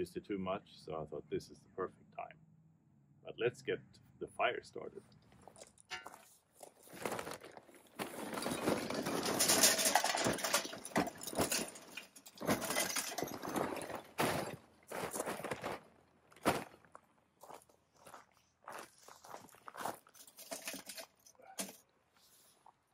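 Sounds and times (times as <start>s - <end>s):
charcoal clattering into metal: 8.2s - 14.5s, 20.2s - 21.8s.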